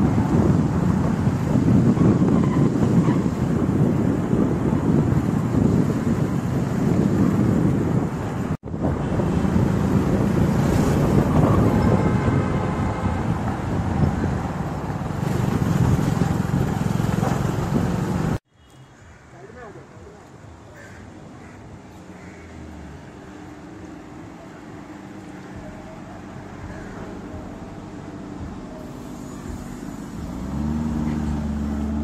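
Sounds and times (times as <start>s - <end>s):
wind on microphone: 0.0s - 18.4s
vehicle engines rumbling: 0.0s - 32.0s.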